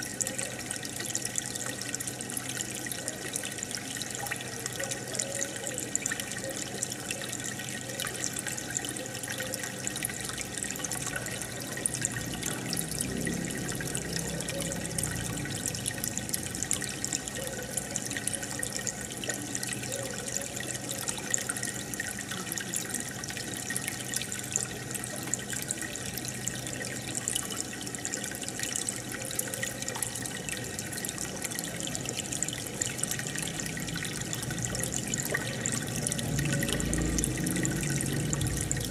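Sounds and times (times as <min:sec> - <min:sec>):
aquarium water bubbling: 0:00.0 - 0:38.9.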